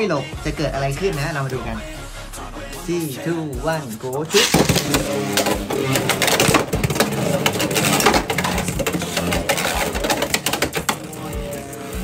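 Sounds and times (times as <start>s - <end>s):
spinning tops clacking and rattling: 4.3s - 12.0s.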